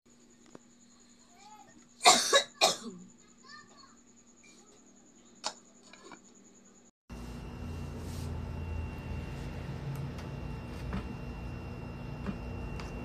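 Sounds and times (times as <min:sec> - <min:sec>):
steady low hum: 0:06.4 - 0:13.0.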